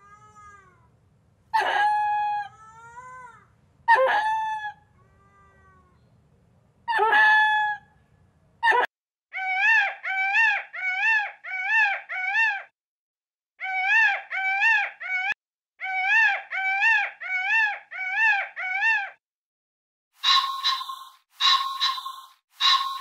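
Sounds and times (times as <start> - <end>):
peafowl calling: 20.2 - 23.0.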